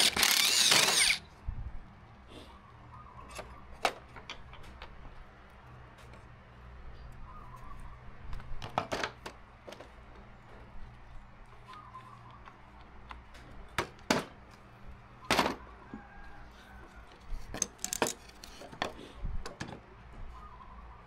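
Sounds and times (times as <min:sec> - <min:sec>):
clamps clicking and knocking: 0:17.4 - 0:19.0.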